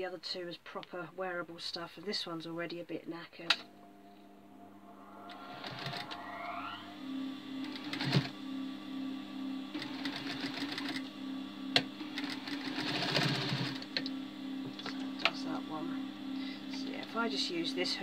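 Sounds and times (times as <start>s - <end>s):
sewing machine stitching: 7.6s - 8.3s, 9.8s - 11.1s, 12.0s - 14.0s.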